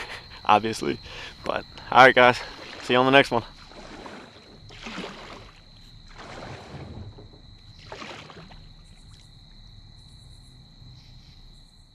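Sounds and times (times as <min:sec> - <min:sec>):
kayak paddle swishing through water: 0:02.2 - 0:09.5.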